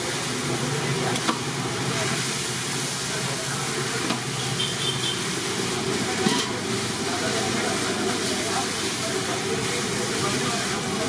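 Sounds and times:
steamer pot hissing: 0.0 - 11.0.

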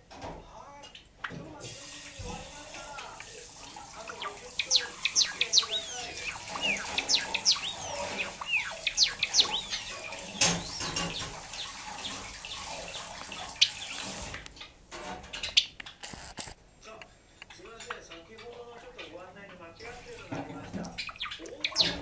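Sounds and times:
sparrow singing: 3.2 - 14.3, 19.8 - 22.0.

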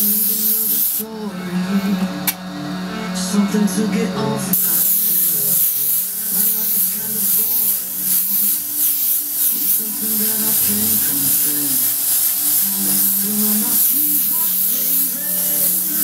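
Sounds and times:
airbrush spraying hiss: 0.0 - 1.1, 4.5 - 16.0.

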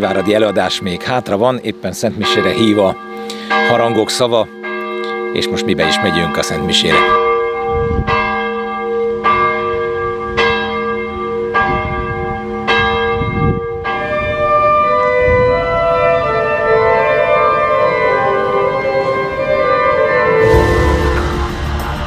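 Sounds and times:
church bells ringing: 0.0 - 22.0
organ music: 20.2 - 22.0.

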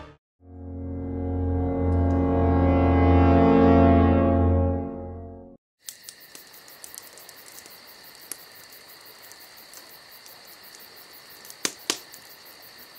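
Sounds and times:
crickets chirping: 5.8 - 12.9.

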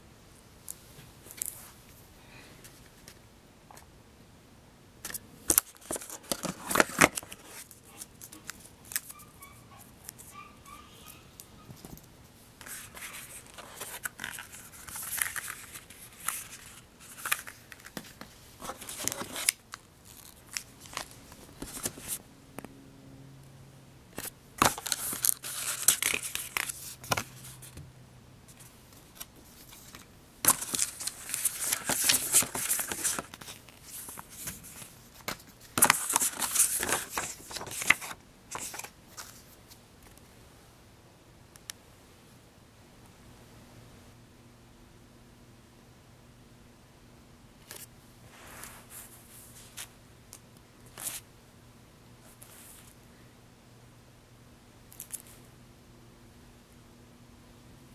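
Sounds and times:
plastic and paper packaging crinkling: 5.1 - 9.2, 12.6 - 22.2, 24.2 - 27.7, 28.5 - 39.8.

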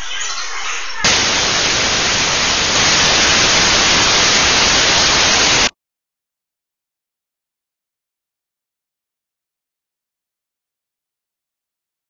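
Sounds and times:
static noise hiss: 1.0 - 5.7.

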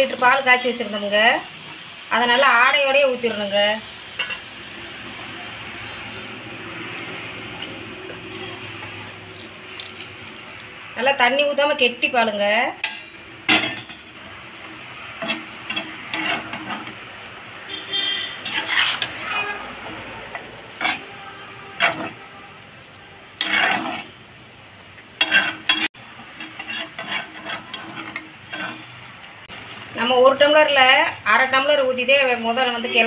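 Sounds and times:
metal spatula scraping frying pan: 4.1 - 4.6, 12.8 - 22.4, 23.2 - 24.3, 25.1 - 29.1.

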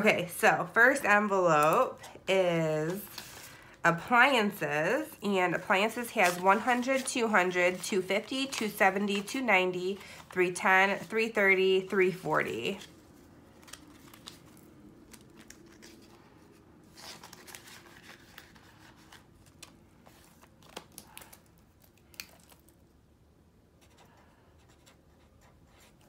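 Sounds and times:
plastic envelopes crinkling: 0.0 - 3.8, 5.6 - 11.4, 12.1 - 23.0
paper banknotes rustling: 0.0 - 4.1, 5.0 - 21.9.

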